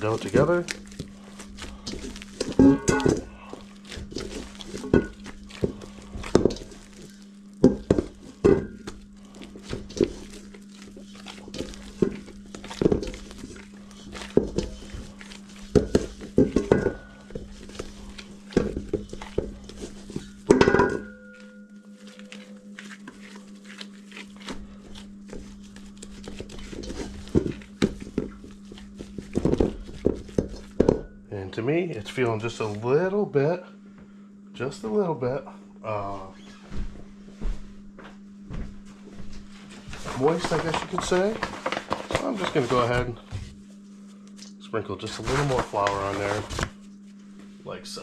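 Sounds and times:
dough knocking in metal bowl: 0:01.9 - 0:23.2, 0:25.0 - 0:31.2
metal bowl ringing: 0:02.2 - 0:09.0, 0:09.7 - 0:28.4, 0:29.5 - 0:33.1.

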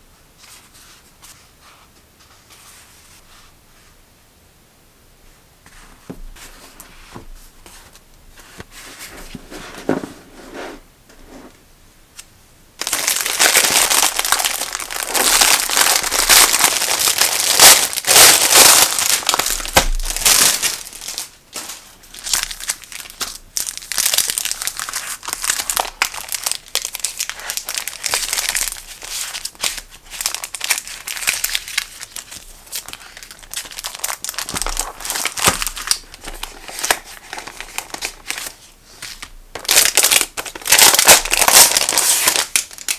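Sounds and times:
paper sheets rustling: 0:05.7 - 0:10.6, 0:12.8 - 0:42.9
plastic packaging crinkling: 0:12.8 - 0:42.9.

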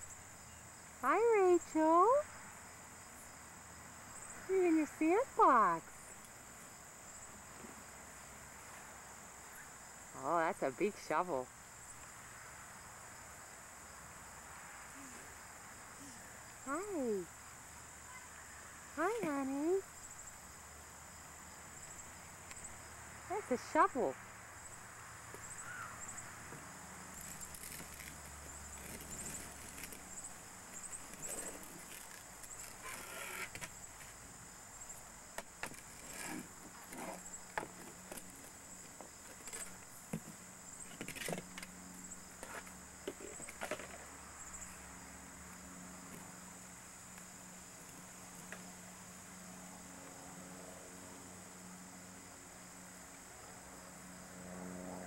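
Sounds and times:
plastic shovel scraping sand: 0:35.8 - 0:37.3.

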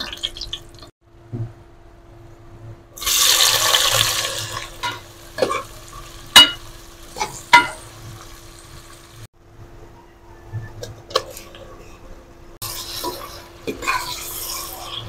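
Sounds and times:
onions sizzling in hot oil: 0:03.0 - 0:09.3
metal ladle knocking pot: 0:06.3 - 0:06.6, 0:07.5 - 0:07.8.

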